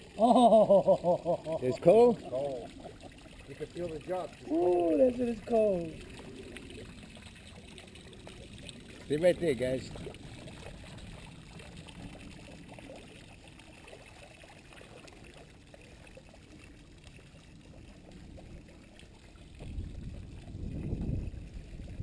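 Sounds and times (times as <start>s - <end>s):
fountain water splashing: 0.0s - 22.0s
wind rumble on microphone: 17.6s - 22.0s.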